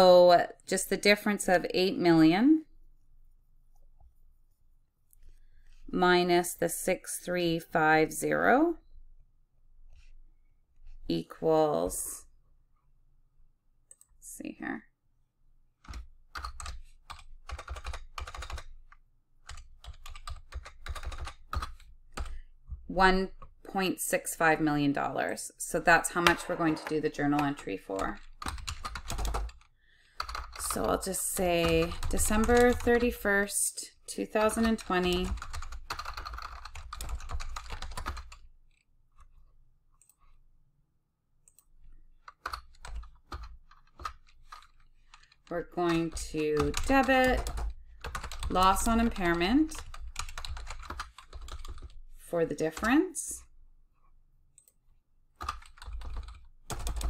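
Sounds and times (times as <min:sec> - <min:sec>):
typing on computer keyboard: 0:15.8 - 0:22.4, 0:26.2 - 0:33.1, 0:34.5 - 0:38.8, 0:41.5 - 0:52.0, 0:55.4 - 0:57.0.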